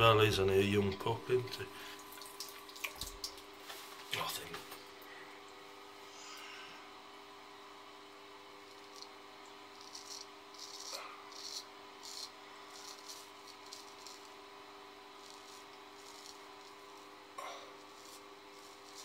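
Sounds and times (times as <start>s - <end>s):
faint steady hum: 0.0s - 19.0s
razor scraping stubble: 9.7s - 14.5s, 15.1s - 19.0s.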